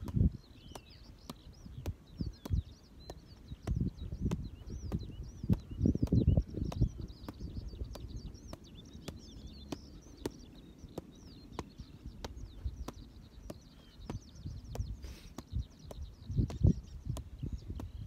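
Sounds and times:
small birds chirping: 0:00.0 - 0:18.0
soccer ball thuds: 0:00.0 - 0:18.0.

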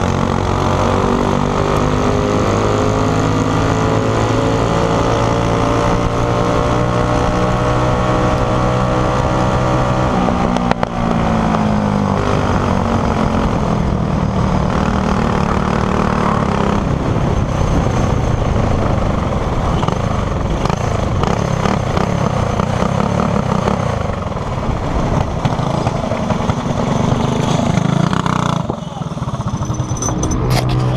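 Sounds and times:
wind noise: 0:00.0 - 0:22.7, 0:29.4 - 0:30.9
kart engine revving: 0:00.0 - 0:30.9.

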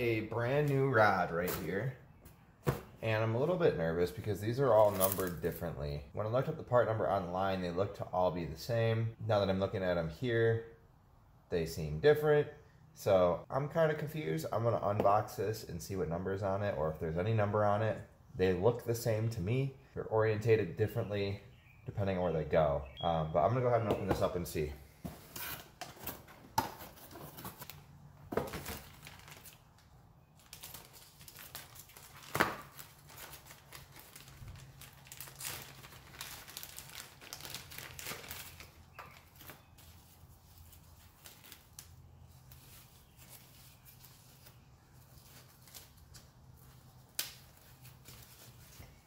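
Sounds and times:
plastic and paper crinkling: 0:04.7 - 0:05.6, 0:26.8 - 0:49.0.

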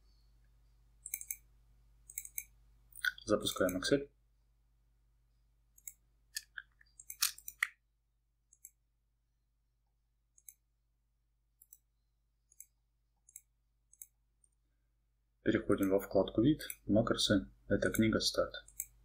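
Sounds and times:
computer mouse clicking: 0:01.0 - 0:01.5, 0:02.1 - 0:03.8, 0:05.8 - 0:07.7, 0:10.4 - 0:10.6, 0:11.6 - 0:11.9, 0:12.5 - 0:14.6, 0:17.8 - 0:19.0.

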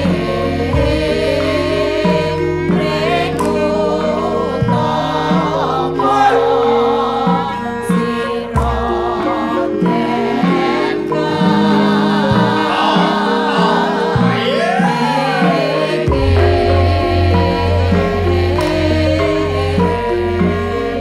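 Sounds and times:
bronze metallophones and gongs: 0:00.0 - 0:21.0
wavering sung vocal: 0:00.0 - 0:21.0
hand drum strikes: 0:18.5 - 0:19.1.

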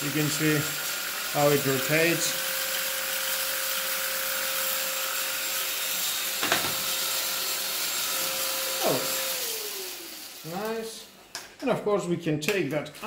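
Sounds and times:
stick vacuum running: 0:00.0 - 0:11.2.

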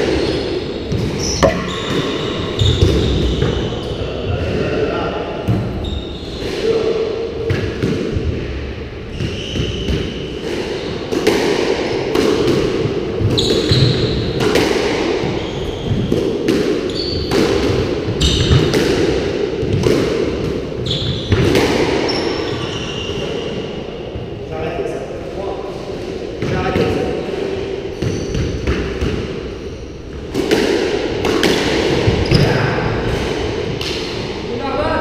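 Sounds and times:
squash ball hits: 0:00.9 - 0:03.6.

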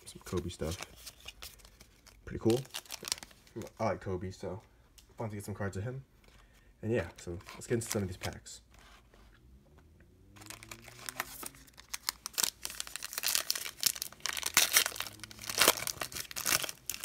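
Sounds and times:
plastic wrapper tearing and crinkling: 0:00.2 - 0:03.7, 0:10.4 - 0:17.0.

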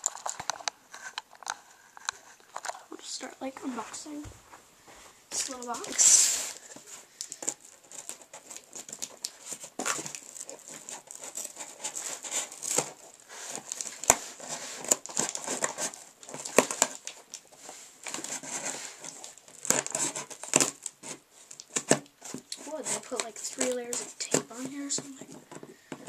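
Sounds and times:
tape crinkling and tearing: 0:00.0 - 0:03.2, 0:05.3 - 0:26.0
scissors cutting packing tape: 0:07.2 - 0:17.3, 0:18.1 - 0:24.5.

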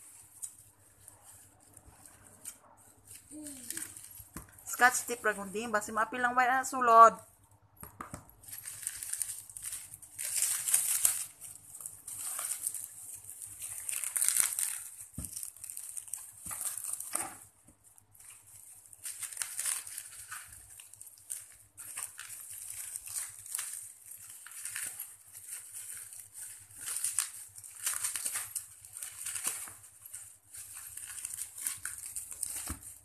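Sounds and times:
plastic film crinkling: 0:00.0 - 0:33.0.

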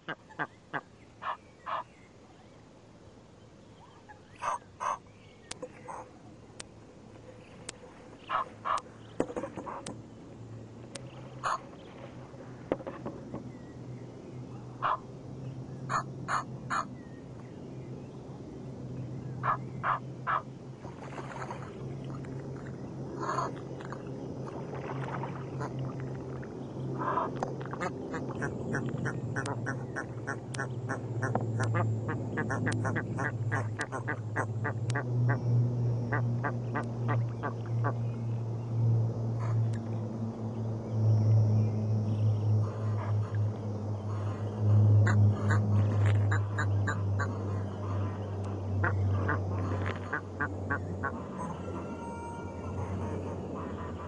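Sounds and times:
steady low hum: 0:00.0 - 0:54.0
geese honking: 0:11.4 - 0:11.7, 0:15.9 - 0:16.9, 0:45.0 - 0:48.2, 0:48.8 - 0:54.0.

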